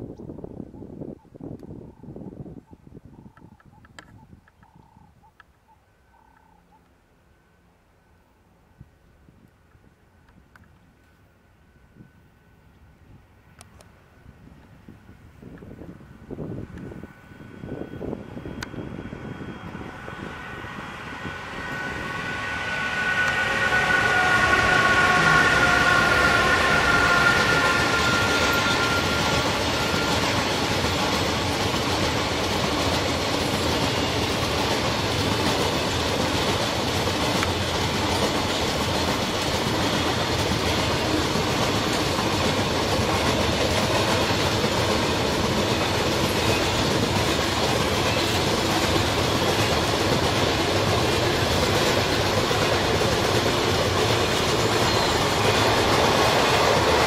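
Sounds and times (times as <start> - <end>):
electric locomotive whine: 0.0 - 57.0
steel wheels rumbling on rails: 15.3 - 57.0
wagons clickety-clack: 27.4 - 57.0.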